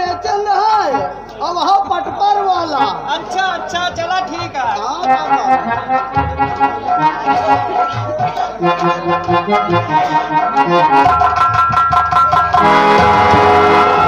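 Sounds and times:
harmonium folk melody: 0.0 - 14.0
drum strokes: 5.2 - 14.0.

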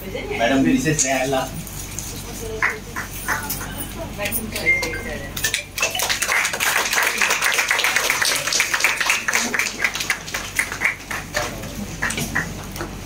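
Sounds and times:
small group clapping: 2.4 - 13.0.

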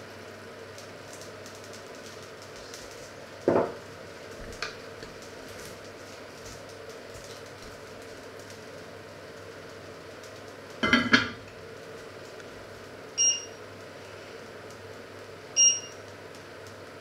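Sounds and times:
short electronic beeps: 13.2 - 13.6, 15.6 - 16.0.

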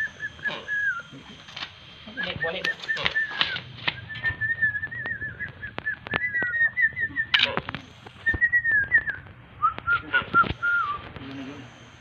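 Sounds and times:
person whistling a tune: 0.0 - 1.1, 2.2 - 7.4, 8.2 - 11.0.

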